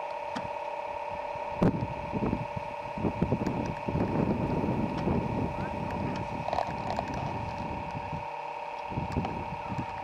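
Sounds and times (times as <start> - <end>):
atv engine whine: 0.0 - 10.0
wind buffeting microphone: 1.5 - 8.3, 8.9 - 10.0.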